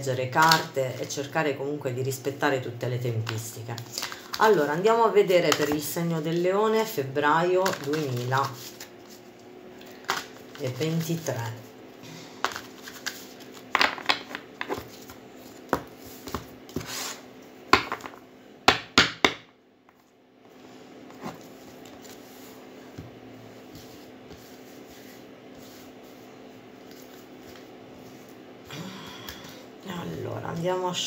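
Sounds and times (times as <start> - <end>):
steady low hum: 0.0 - 31.0
cards being shuffled: 7.6 - 11.4, 12.4 - 17.2, 21.1 - 22.5.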